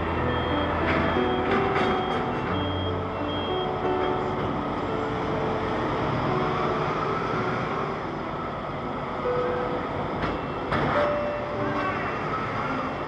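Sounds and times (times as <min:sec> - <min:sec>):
ferry engine rumble: 0:00.0 - 0:13.0.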